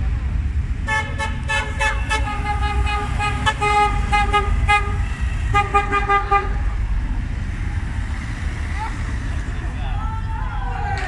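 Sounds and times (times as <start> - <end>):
low rumble of engines: 0.0 - 11.0
car horns beeping: 0.8 - 6.7.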